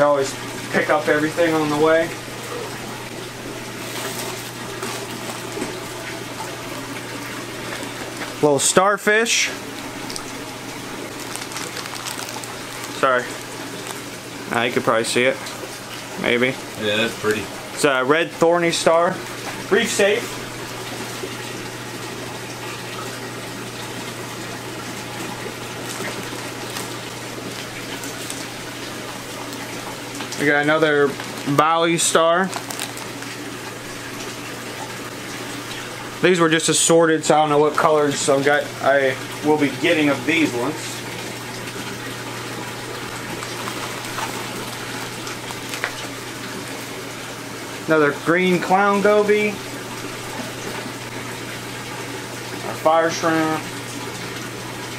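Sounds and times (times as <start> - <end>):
low pump hum: 0.0 - 54.9
water rushing through tanks: 0.0 - 54.9
plastic bags crinkling: 9.6 - 14.2, 29.4 - 33.6, 42.9 - 46.1.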